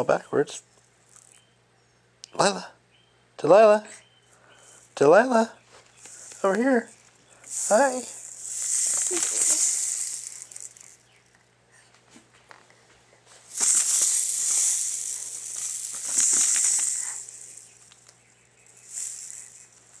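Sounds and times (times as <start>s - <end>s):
plastic rattle toy shaking: 1.1s - 1.4s, 5.9s - 11.3s, 13.5s - 20.0s.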